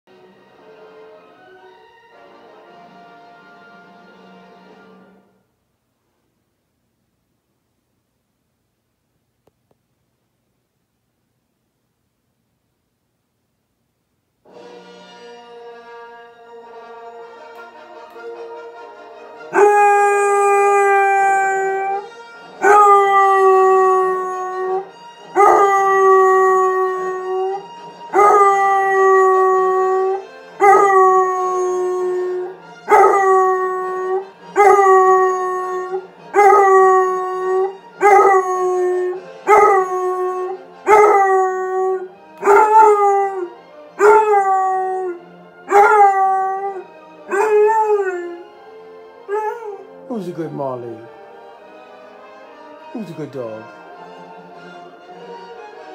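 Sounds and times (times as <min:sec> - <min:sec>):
dog howling: 0:19.5 - 0:48.5, 0:49.3 - 0:49.9.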